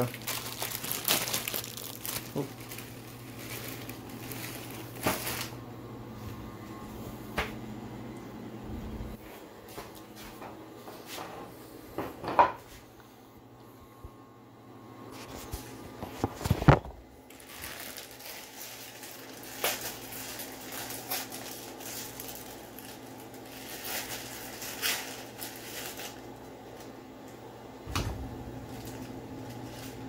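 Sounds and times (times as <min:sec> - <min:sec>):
plastic packet crinkling: 0:00.0 - 0:05.6, 0:16.4 - 0:27.0, 0:28.6 - 0:30.0.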